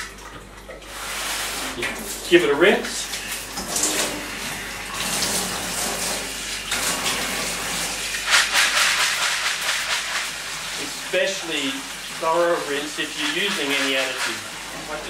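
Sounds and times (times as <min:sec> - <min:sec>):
tap water splashing into bucket: 0:00.0 - 0:00.9.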